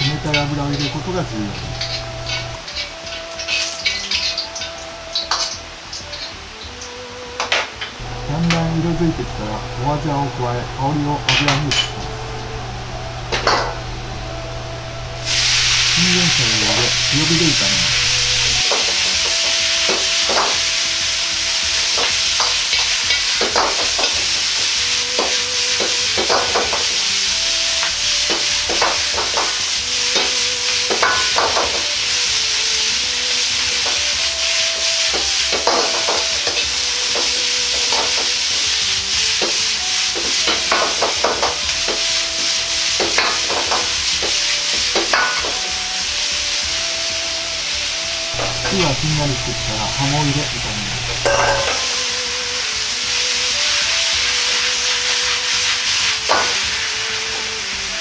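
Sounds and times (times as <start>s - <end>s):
vegetables sizzling in a wok: 0.0s - 58.0s
metal ladle scraping a wok: 1.6s - 6.4s, 15.0s - 16.1s, 51.0s - 52.1s.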